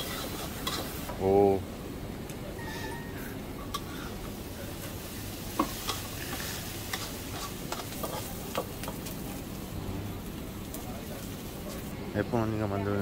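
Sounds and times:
food sizzling in a wok: 0.0s - 1.2s, 2.6s - 12.0s
utensil scraping a pan: 5.8s - 8.4s.

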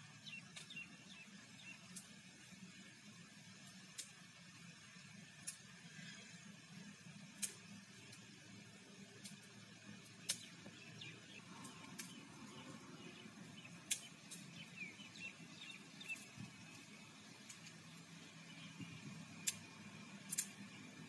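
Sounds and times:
low steady rumble: 0.0s - 21.0s
faint bird chirps: 0.1s - 1.9s, 10.2s - 16.9s
sharp clicks: 13.8s - 14.5s, 19.4s - 19.7s.

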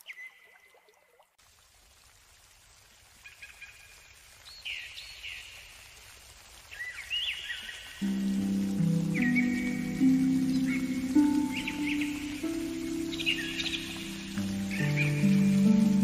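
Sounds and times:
whistled bird chirps: 0.0s - 0.7s, 9.2s - 10.9s
background hiss: 1.4s - 16.0s
music with held chords: 8.0s - 16.0s.

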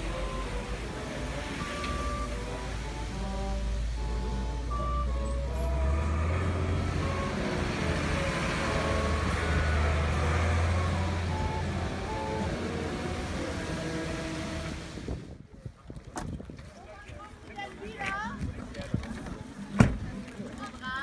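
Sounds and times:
truck engine drone: 0.0s - 15.2s.

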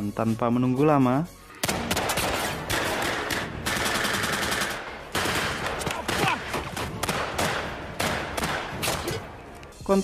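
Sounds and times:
automatic gunfire: 1.6s - 9.1s
man shouting: 5.9s - 6.5s.

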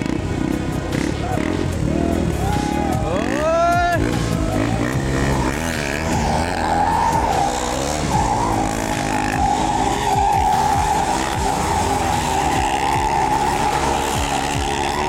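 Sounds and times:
motorcycle engines revving: 0.0s - 15.0s
tyres squealing: 3.2s - 15.0s.

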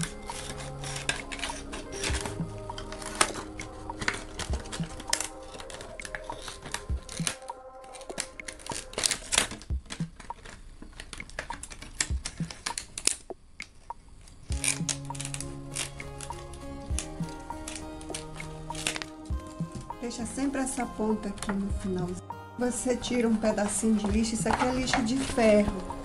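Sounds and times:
soft background music: 0.0s - 12.8s, 14.5s - 26.0s
scissors snipping plastic: 0.0s - 13.8s, 14.5s - 19.9s, 23.6s - 26.0s
plastic crinkling: 0.0s - 21.6s, 23.6s - 26.0s.

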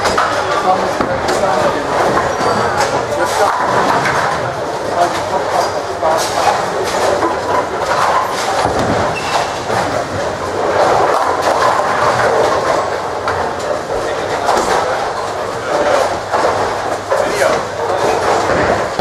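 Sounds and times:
clatter of balls and pins: 0.0s - 15.2s
bowling balls rolling: 0.0s - 19.0s.

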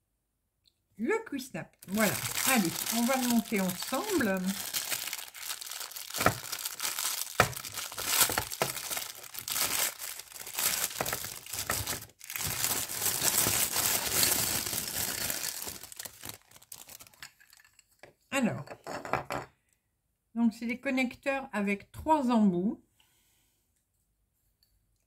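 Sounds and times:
plastic bag crinkling: 1.8s - 17.8s.

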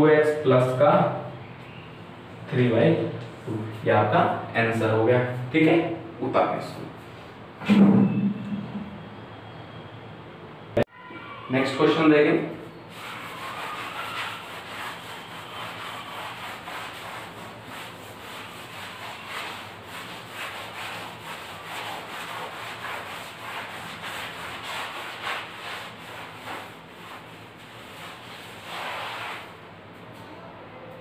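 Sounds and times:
cloth rubbing chalkboard: 12.9s - 29.7s.

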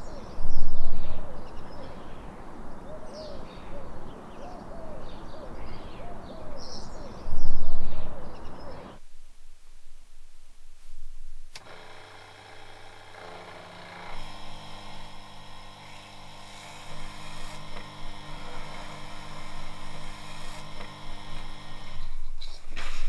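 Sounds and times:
motor switch click: 11.6s - 22.1s
electric motor humming: 11.6s - 22.3s.

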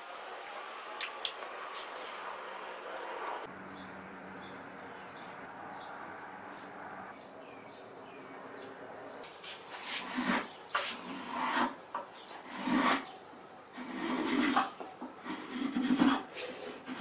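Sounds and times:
hand plane rasping on wood: 9.8s - 11.8s, 12.4s - 13.0s, 13.8s - 17.0s.

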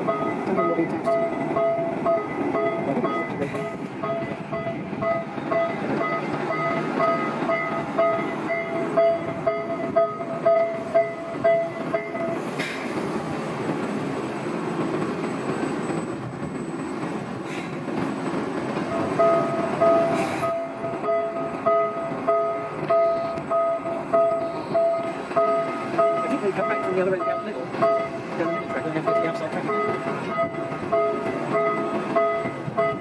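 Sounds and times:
rail locomotive mechanical rumble: 0.0s - 33.0s
rapid warning beep: 0.1s - 10.3s.

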